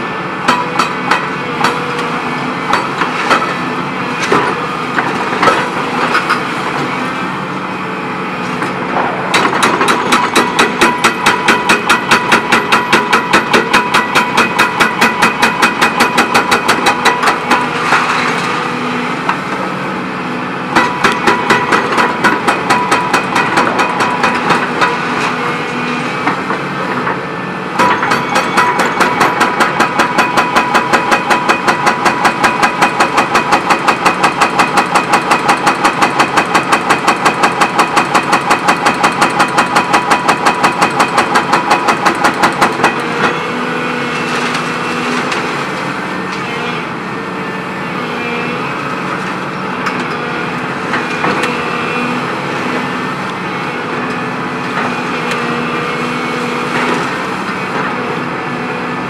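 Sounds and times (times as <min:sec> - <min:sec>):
excavator diesel engine running: 0:00.0 - 0:59.0
hydraulic hammer pounding concrete: 0:00.4 - 0:06.5, 0:08.8 - 0:19.6, 0:20.7 - 0:27.2, 0:27.8 - 0:45.5, 0:50.9 - 0:52.9.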